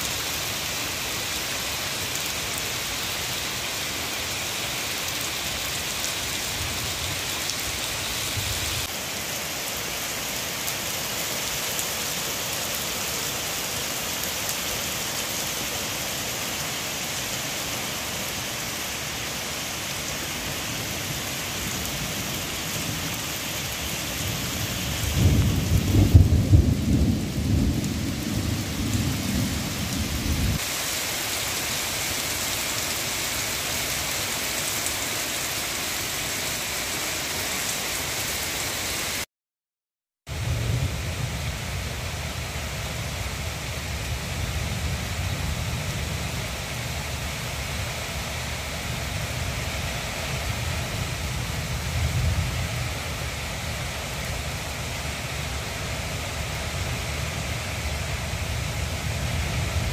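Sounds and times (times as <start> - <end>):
heavy rain on pavement: 0.0 - 39.3, 40.3 - 59.9
thunder rumbling: 21.7 - 30.7.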